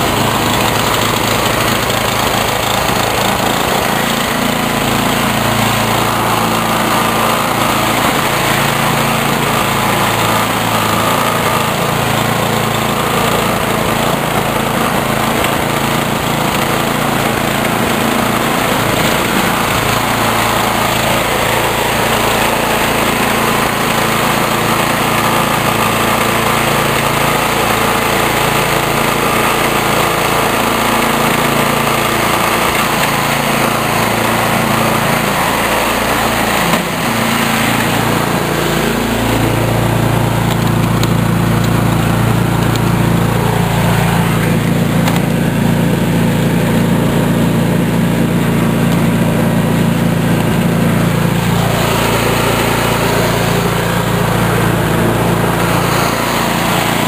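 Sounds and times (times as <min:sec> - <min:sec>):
snowblower engine running: 0:00.0 - 0:57.0.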